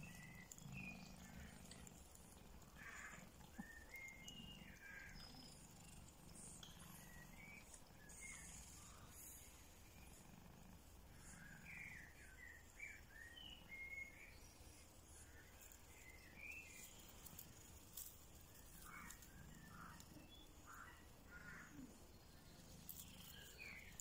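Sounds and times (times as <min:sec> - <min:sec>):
faint high chirps: 0:00.0 - 0:10.1.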